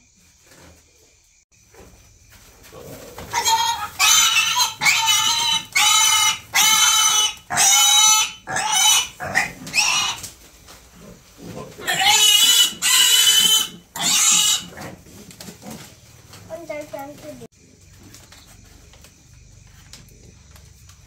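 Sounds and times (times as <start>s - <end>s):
piglet squealing: 3.3s - 10.2s, 11.8s - 14.8s.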